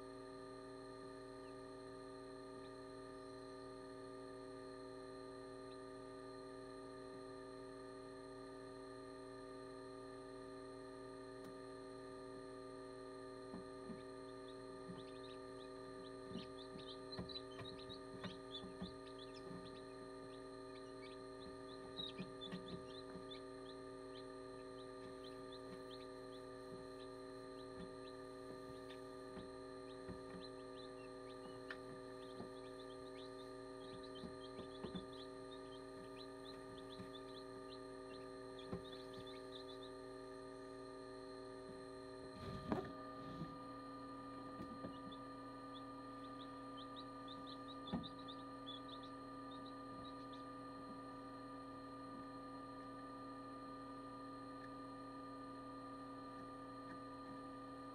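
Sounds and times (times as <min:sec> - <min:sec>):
incubator fan hum: 0:00.0 - 0:57.9
chicks peeping: 0:13.9 - 0:40.0, 0:44.6 - 0:50.5.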